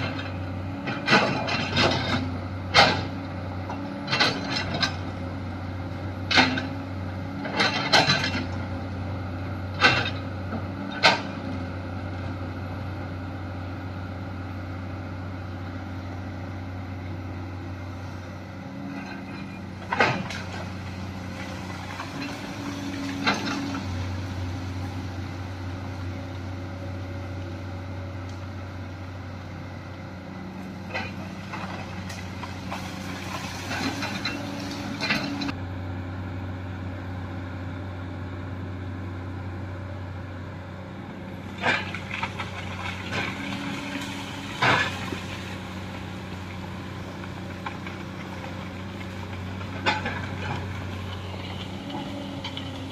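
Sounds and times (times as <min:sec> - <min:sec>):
excavator bucket clanking: 0:00.0 - 0:03.2, 0:19.0 - 0:24.1
excavator diesel engine running: 0:00.0 - 0:52.9.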